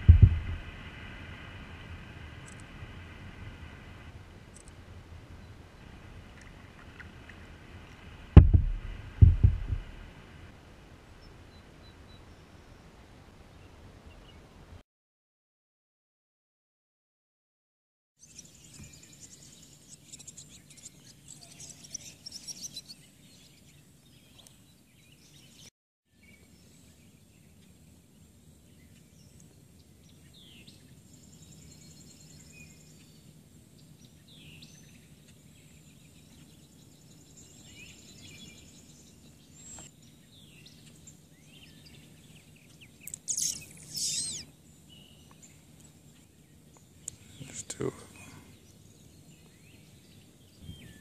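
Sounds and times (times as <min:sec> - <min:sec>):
steady low hum: 0:00.0 - 0:11.2
birds chirping: 0:28.6 - 0:51.0
loud sweeping calls: 0:43.2 - 0:44.5.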